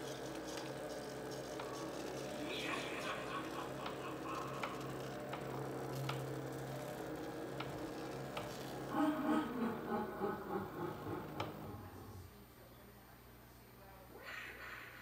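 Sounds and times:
small motor hum: 0.0 - 12.4
regular mechanical tick: 3.4 - 8.9.

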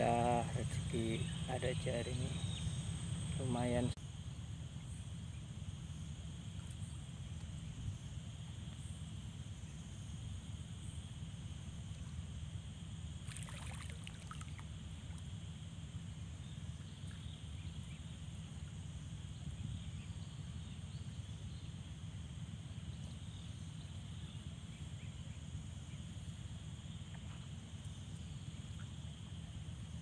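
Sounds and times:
high insect drone: 0.0 - 30.0
wind: 0.0 - 30.0
moving water: 13.2 - 15.3.

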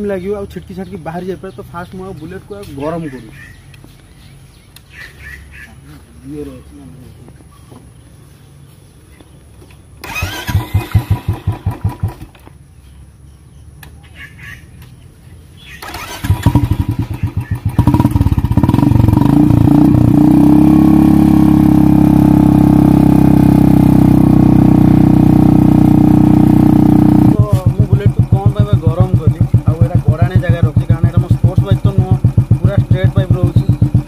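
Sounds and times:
motorcycle engine starting: 9.9 - 12.6, 15.7 - 34.0.

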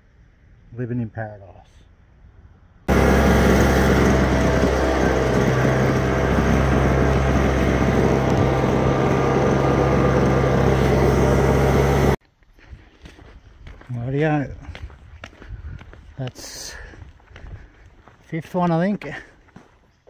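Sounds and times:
engine running steadily: 2.9 - 12.2.

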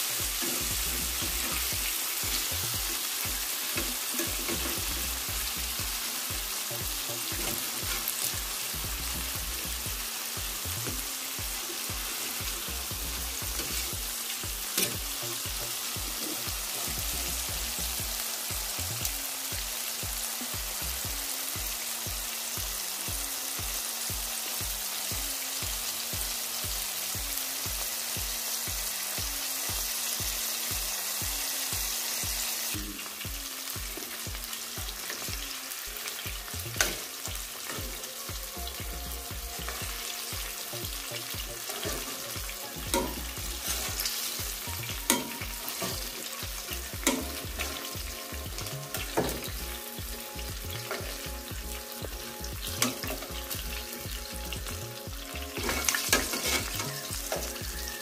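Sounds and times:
chicken sizzling in hot oil: 0.0 - 58.0
metal tongs clicking on pan: 45.1 - 46.0.

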